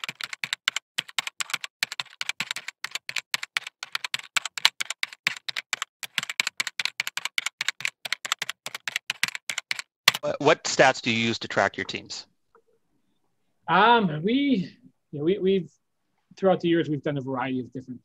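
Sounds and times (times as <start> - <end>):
rapid keyboard typing: 0.0 - 10.3.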